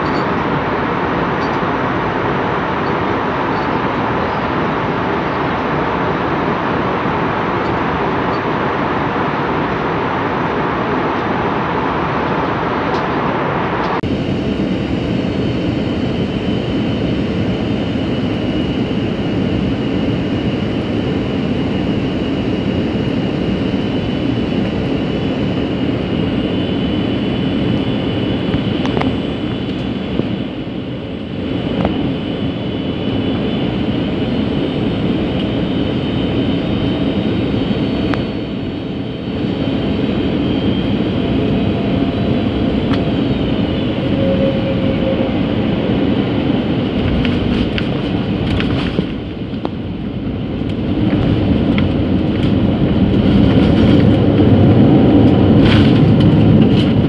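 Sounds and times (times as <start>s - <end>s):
high steady whine: 0.0s - 57.0s
jet engine cabin roar: 0.0s - 57.0s.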